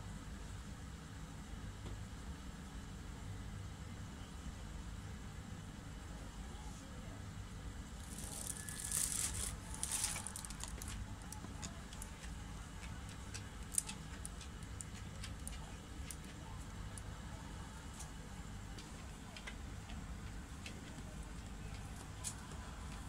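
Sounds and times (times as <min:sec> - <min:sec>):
steady low hum: 0:00.0 - 0:23.0
dog claws clicking on vinyl floor: 0:09.8 - 0:16.4.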